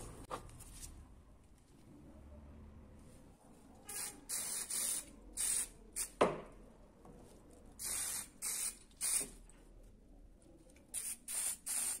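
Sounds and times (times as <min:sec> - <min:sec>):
spray paint hissing: 0:04.0 - 0:06.2, 0:07.8 - 0:09.4, 0:10.9 - 0:12.0.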